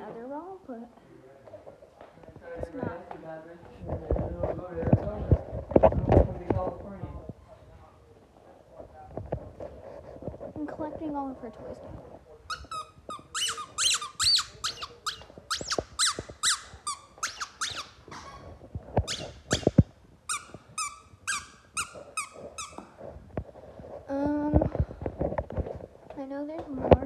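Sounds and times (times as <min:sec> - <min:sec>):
squeaky dog toy squeaking: 0:12.5 - 0:22.8.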